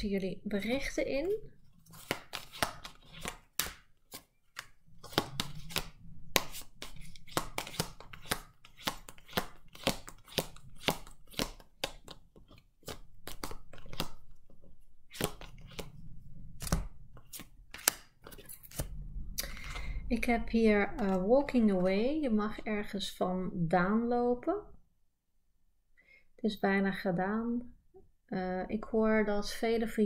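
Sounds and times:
cards being shuffled: 1.7s - 16.0s, 16.6s - 20.0s.

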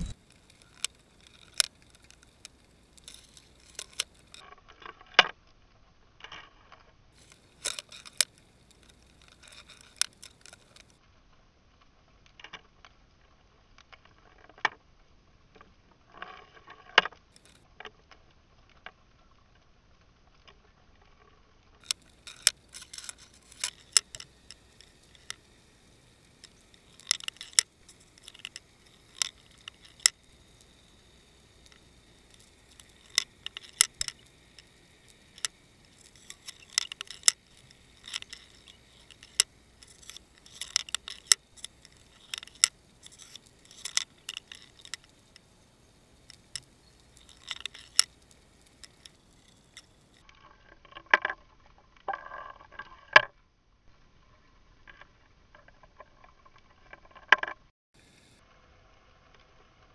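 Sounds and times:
sharp underwater clicks: 0.0s - 4.4s, 21.8s - 50.2s
faint hiss: 21.8s - 50.3s, 58.0s - 59.9s.

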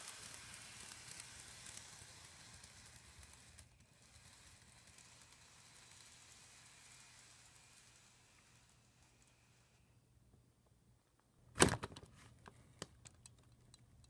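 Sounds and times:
model train running: 0.0s - 10.0s.

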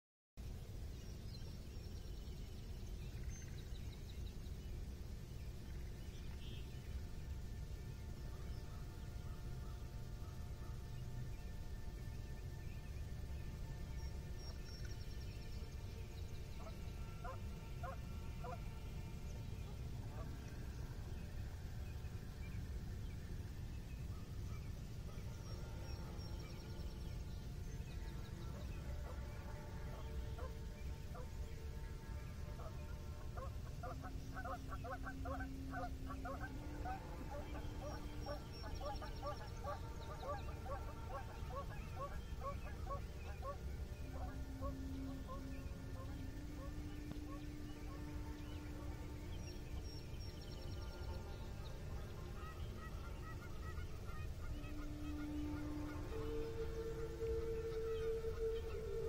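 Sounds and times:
low outdoor rumble: 0.4s - 59.0s
faint bird chirps: 24.0s - 59.0s.

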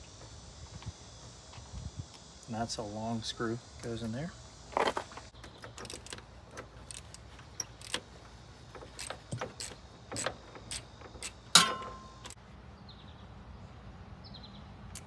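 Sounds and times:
metal clink: 10.2s - 12.4s.

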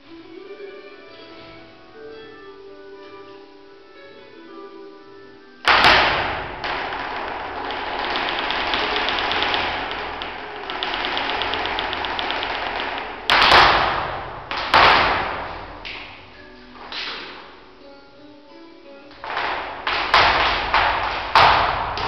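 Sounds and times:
dancer's heel and toe strikes: 5.6s - 17.7s, 19.1s - 22.0s
loud foot stamps: 5.6s - 17.7s, 19.1s - 22.0s.

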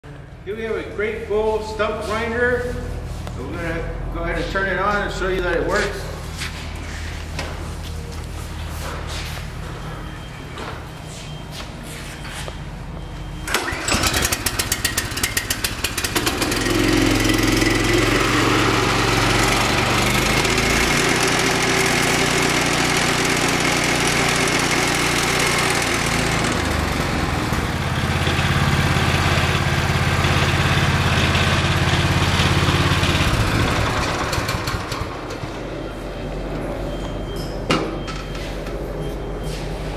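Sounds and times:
stump grinder engine running: 13.5s - 35.4s.

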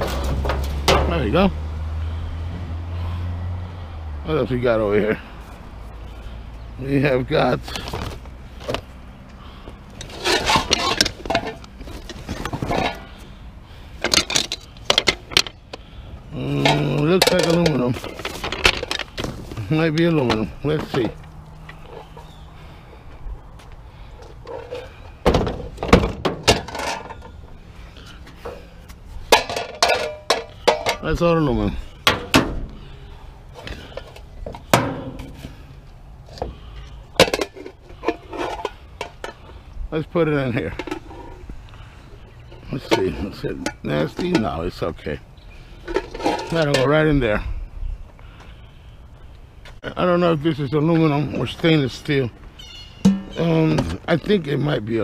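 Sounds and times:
cardboard rustling and scraping: 10.0s - 13.1s
metal pot knocks: 53.0s - 53.4s.

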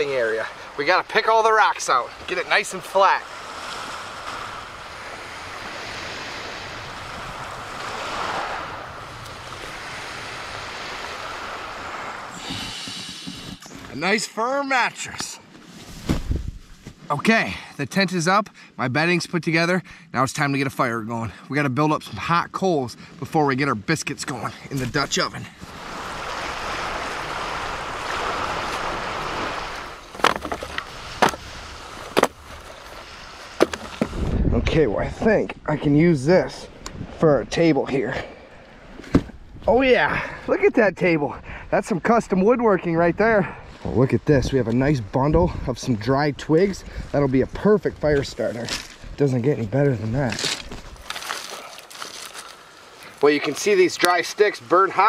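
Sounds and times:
surf washing onto shore: 0.0s - 15.0s, 24.8s - 34.5s
wind: 0.0s - 55.0s
wooden logs knocking: 30.1s - 32.7s, 33.6s - 34.2s.

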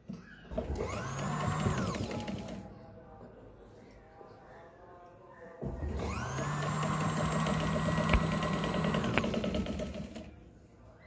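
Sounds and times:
sewing machine stitching: 0.6s - 2.7s, 5.8s - 10.4s.

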